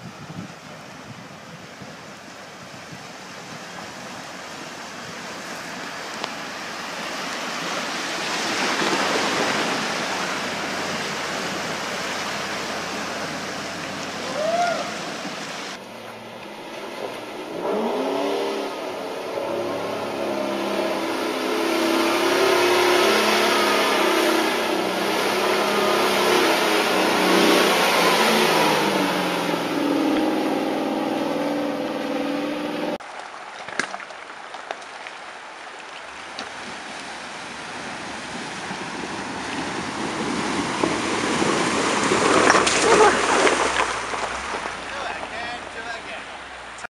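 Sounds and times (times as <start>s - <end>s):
water rushing and splashing: 0.0s - 46.9s
car engine revving: 15.7s - 33.0s.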